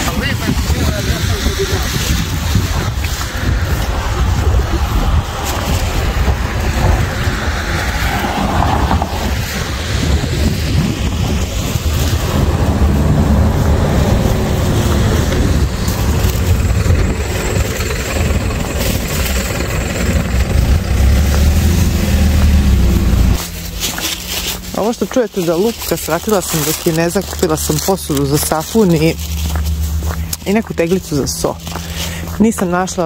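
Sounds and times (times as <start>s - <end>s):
wind buffeting microphone: 0.0s - 23.4s
traffic on wet road: 0.0s - 33.0s.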